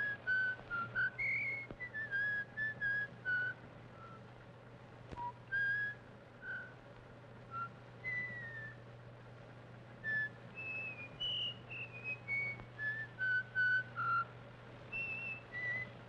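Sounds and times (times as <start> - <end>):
person whistling a tune: 0.0 - 4.2, 5.2 - 6.8, 7.5 - 8.8, 10.0 - 14.3, 14.9 - 16.0
low steady hum: 0.0 - 16.0.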